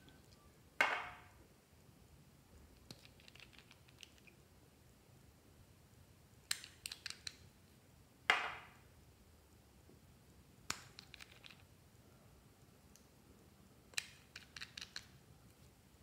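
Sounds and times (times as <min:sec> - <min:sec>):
plastic bottle caps clicking: 0:06.5 - 0:07.4, 0:13.9 - 0:15.1.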